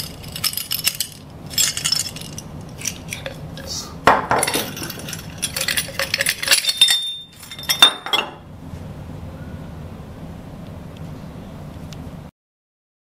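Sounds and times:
metal clicks and clinks: 0:00.0 - 0:03.7, 0:04.4 - 0:08.4.

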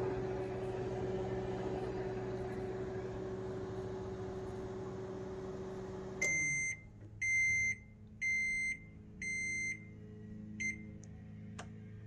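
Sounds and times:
microwave oven humming: 0:00.0 - 0:12.0
microwave beeps: 0:06.1 - 0:09.9, 0:10.6 - 0:10.9.

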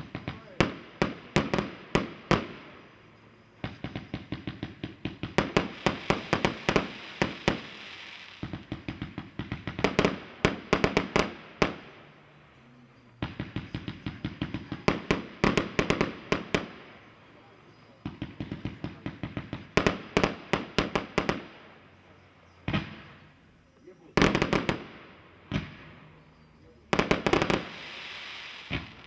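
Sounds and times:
firework cake pops and bangs: 0:00.0 - 0:02.6, 0:03.6 - 0:11.9, 0:13.2 - 0:16.9, 0:17.8 - 0:21.5, 0:22.6 - 0:23.2, 0:24.2 - 0:26.0, 0:27.0 - 0:29.0.

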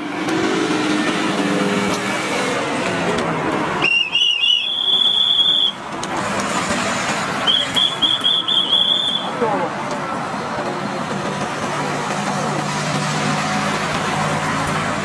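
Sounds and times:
passing traffic road noise: 0:00.0 - 0:15.0
pea whistle trilling blasts: 0:03.8 - 0:05.8, 0:07.4 - 0:09.3.

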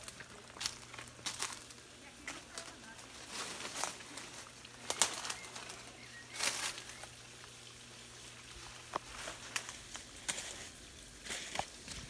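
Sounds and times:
leaves and twigs rustling: 0:00.0 - 0:12.0
twig snapping: 0:04.8 - 0:05.5.

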